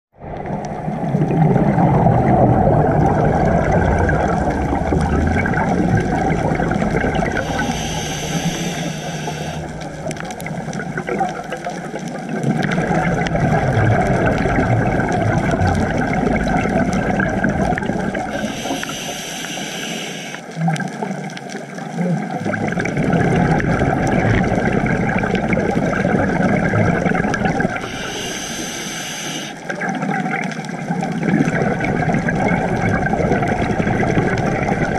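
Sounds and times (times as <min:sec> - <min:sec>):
bubbly underwater exhalation: 0:00.2 - 0:19.4, 0:21.9 - 0:34.9
regulator hissing inhale: 0:07.3 - 0:09.8, 0:18.3 - 0:20.4, 0:27.8 - 0:29.7.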